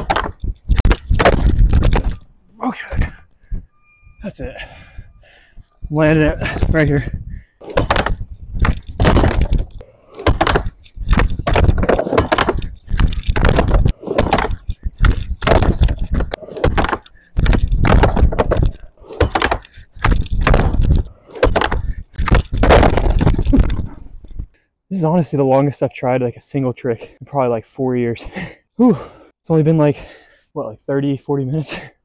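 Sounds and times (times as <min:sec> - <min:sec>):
skateboard knocking and clacking: 0:00.0 - 0:02.1, 0:07.6 - 0:23.9
skateboard wheels rolling on ramp: 0:07.7 - 0:23.8.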